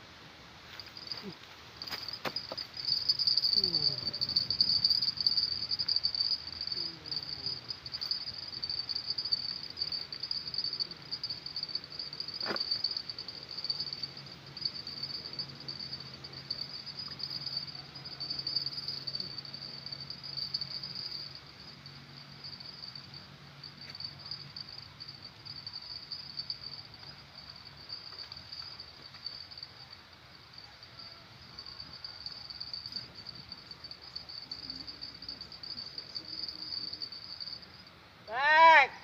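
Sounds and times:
high pulsing insect chorus: 0:00.6 - 0:39.0.

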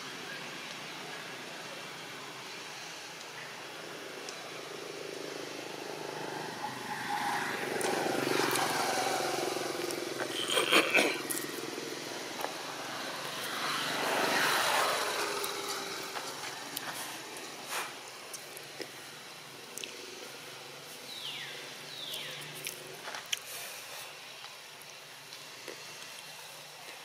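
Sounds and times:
passing vehicle engine hum: 0:03.8 - 0:18.3.

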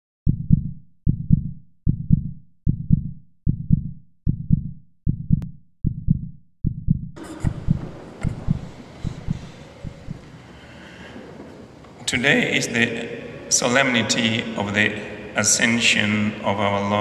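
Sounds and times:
heartbeat thumps: 0:00.2 - 0:10.4
room ambience hiss: 0:07.2 - 0:16.9.

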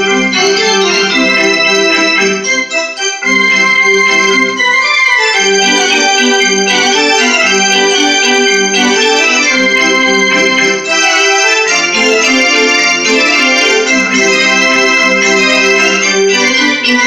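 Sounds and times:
electronic keyboard playing: 0:00.0 - 0:17.0.

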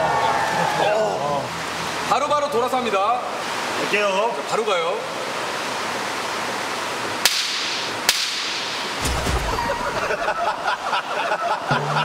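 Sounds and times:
sharp cracks of blows: 0:07.2 - 0:09.6.

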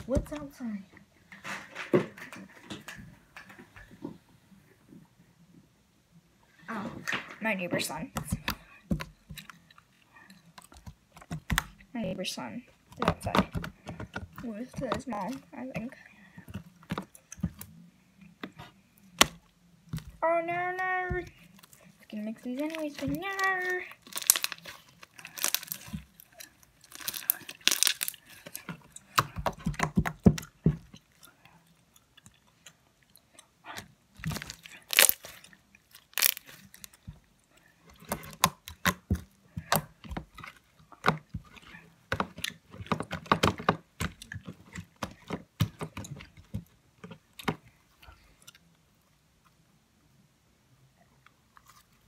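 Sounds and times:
slime squelching and popping: 0:10.5 - 0:12.1, 0:20.8 - 0:31.3, 0:33.4 - 0:37.3, 0:37.9 - 0:47.7.

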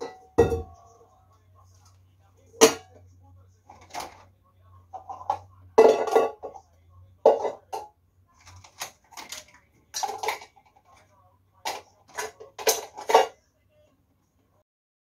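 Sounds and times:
ceramic plates clinking: 0:00.0 - 0:00.9, 0:05.0 - 0:06.6, 0:11.7 - 0:13.4.

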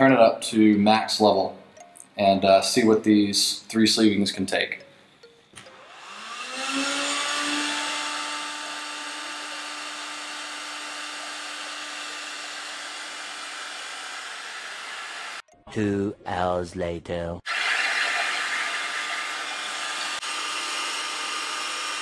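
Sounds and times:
heat gun fan whining and blowing: 0:05.6 - 0:15.4, 0:17.5 - 0:22.0.

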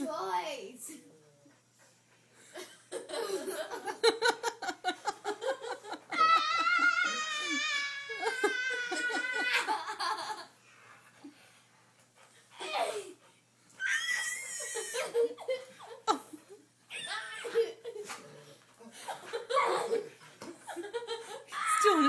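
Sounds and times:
girls laughing: 0:02.5 - 0:10.6, 0:14.1 - 0:18.2, 0:18.8 - 0:22.0
high-pitched squeal of laughter: 0:06.1 - 0:10.3, 0:13.8 - 0:15.6.

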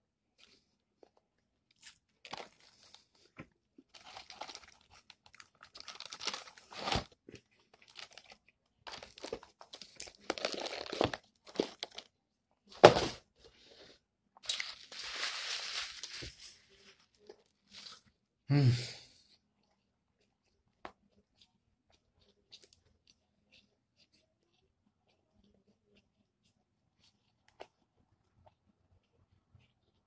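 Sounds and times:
crunching fried chicken: 0:01.7 - 0:12.1.

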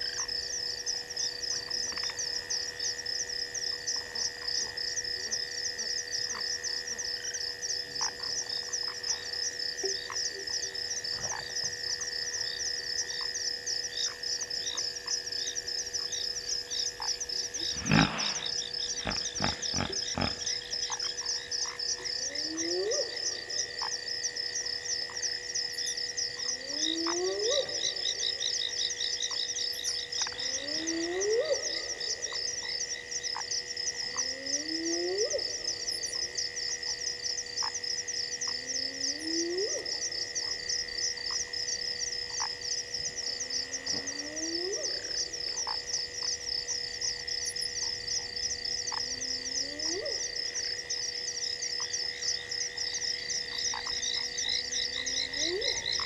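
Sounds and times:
frogs and insects chorus: 0:00.0 - 0:56.0
rising animal calls: 0:17.6 - 0:20.8.

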